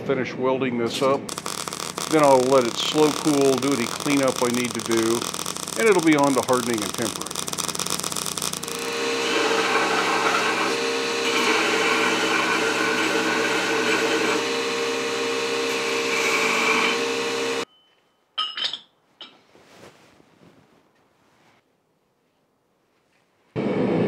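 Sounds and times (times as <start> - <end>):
belt grinder grinding steel: 1.3 - 17.6
metal clinks on anvil: 17.7 - 19.3.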